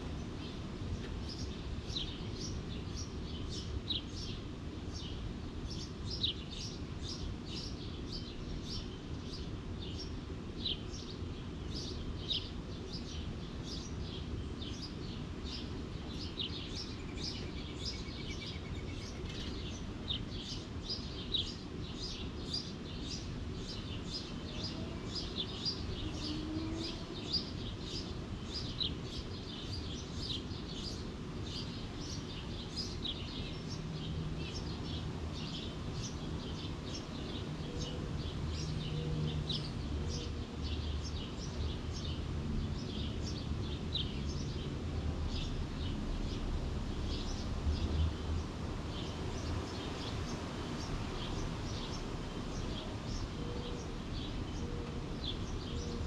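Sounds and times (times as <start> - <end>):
birds chirping: 47.1 - 56.0.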